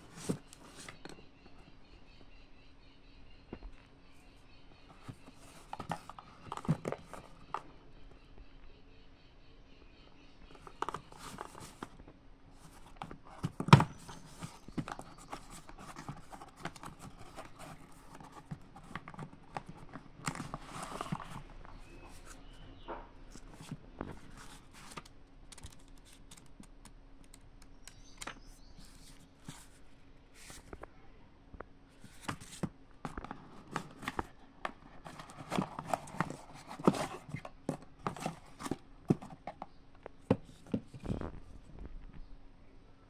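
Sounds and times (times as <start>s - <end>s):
faint steady hum: 0.0s - 43.0s
packaging rustling and clicking: 32.0s - 39.7s.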